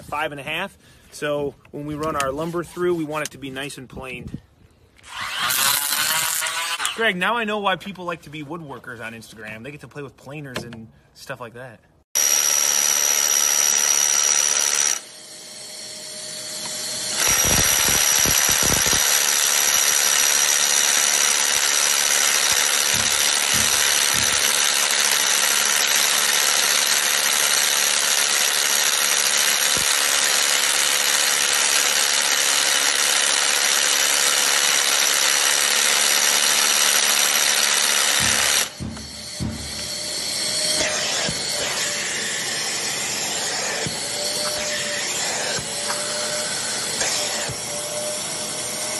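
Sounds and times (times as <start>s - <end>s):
hammer drill boring into concrete: 5.0s - 7.1s, 12.2s - 48.9s.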